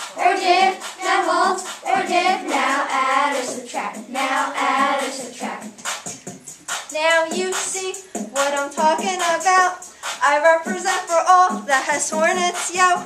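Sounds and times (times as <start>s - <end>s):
children singing rap chorus: 0.0s - 6.1s, 6.7s - 13.0s
music: 0.0s - 13.0s.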